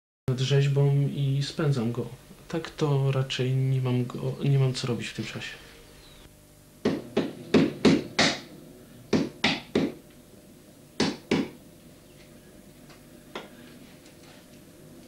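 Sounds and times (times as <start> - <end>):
wooden knocks of carving strikes: 6.8 - 8.5, 9.1 - 10.0, 11.0 - 11.6.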